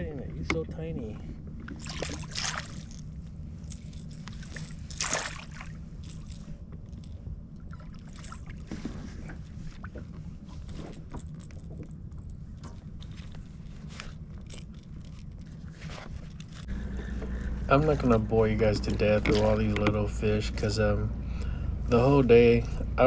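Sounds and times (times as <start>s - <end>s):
steady low hum: 0.0s - 23.0s
water sloshing around boat: 0.0s - 23.0s
water splashes: 1.2s - 3.1s, 4.3s - 6.2s.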